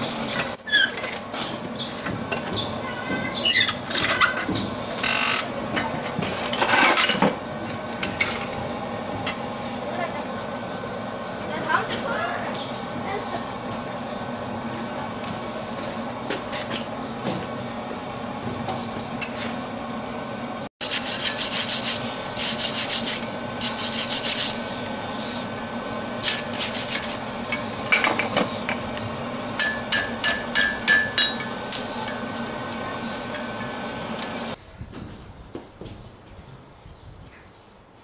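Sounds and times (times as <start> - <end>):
steady background hum: 0.0 - 38.0
wire brush scrubbing steel: 20.8 - 25.4, 26.2 - 27.6.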